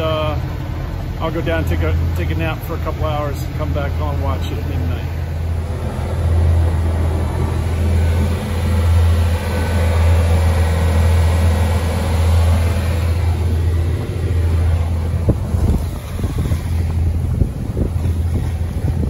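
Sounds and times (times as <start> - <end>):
boat diesel engine droning: 0.0 - 19.0.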